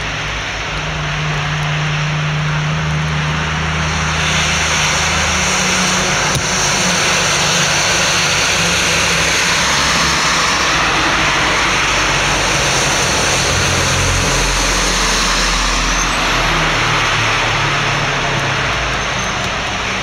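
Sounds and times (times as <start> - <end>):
diesel lorry driving past: 0.0 - 20.0
tyre noise on wet road: 0.0 - 20.0.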